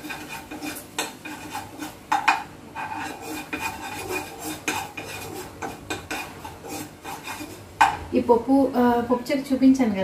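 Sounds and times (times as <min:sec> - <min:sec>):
metal spoon scraping a pan: 0:00.0 - 0:08.0
sharp knock on pan: 0:07.8 - 0:08.0.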